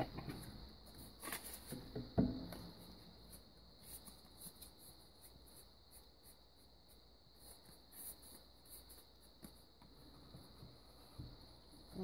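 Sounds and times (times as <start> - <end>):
faint high-pitched whine: 0.0 - 12.0
cardboard being bent and folded: 0.4 - 2.0.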